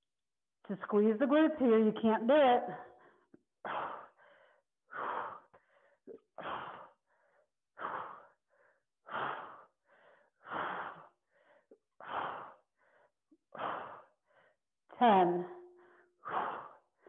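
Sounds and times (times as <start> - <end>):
woman breathing hard: 2.9 - 14.7, 15.6 - 17.0.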